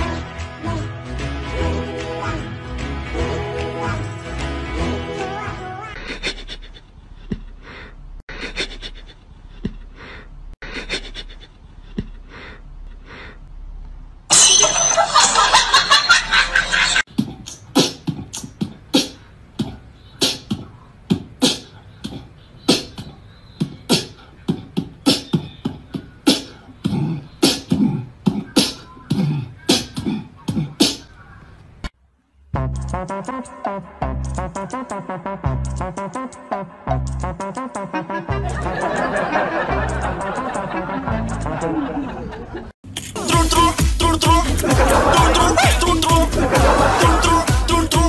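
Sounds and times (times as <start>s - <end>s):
beat-driven percussive music: 43.2s - 48.0s.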